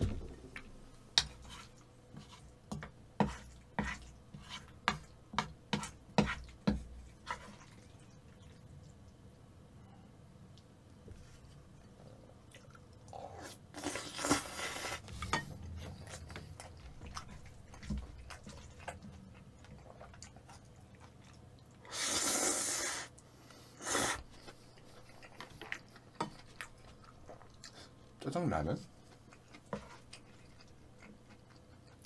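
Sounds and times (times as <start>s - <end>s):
wet chewing: 11.8s - 21.9s, 24.2s - 28.1s, 28.9s - 32.0s.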